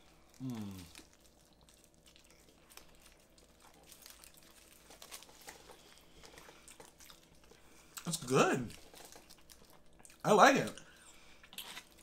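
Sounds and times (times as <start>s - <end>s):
aluminium foil rustling: 0.0s - 6.0s
soft chewing: 0.0s - 12.0s.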